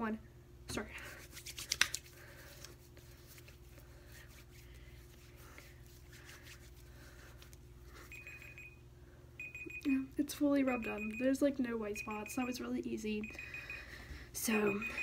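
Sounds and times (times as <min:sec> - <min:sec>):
hands rubbing lotion: 0:01.1 - 0:07.7
timer beeping: 0:08.1 - 0:08.8, 0:09.4 - 0:15.0.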